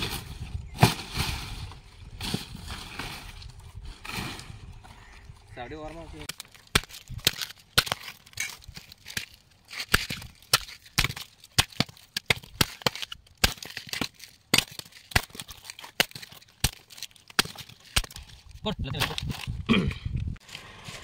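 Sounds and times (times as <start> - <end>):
fibrous husk crackling and tearing: 6.2 - 19.7.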